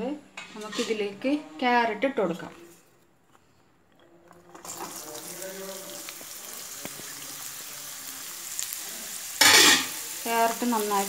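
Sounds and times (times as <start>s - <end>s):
carrots sizzling in hot oil: 4.6s - 11.0s.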